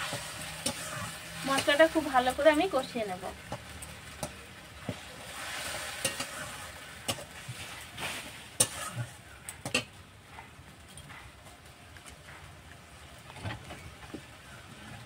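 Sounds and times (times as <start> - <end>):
spatula scraping pan: 0.0 - 2.3, 3.4 - 9.9
spice paste sizzling in oil: 0.0 - 10.0.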